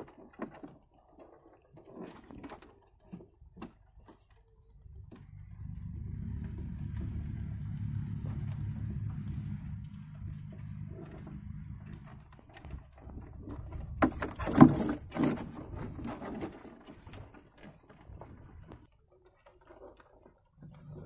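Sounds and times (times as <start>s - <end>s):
low steady hum: 3.3s - 16.1s
crab shell clattering and scraping: 12.5s - 17.8s.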